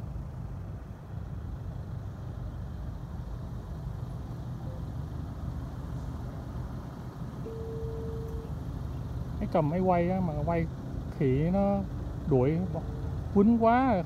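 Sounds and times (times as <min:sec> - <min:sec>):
engine idling rumble: 0:00.0 - 0:14.0
faint steady tone: 0:00.0 - 0:14.0.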